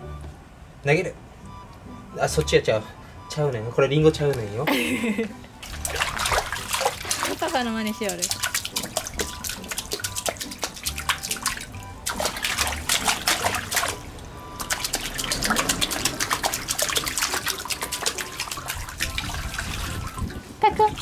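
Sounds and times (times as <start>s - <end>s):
hands slapping shallow water: 5.6s - 20.2s.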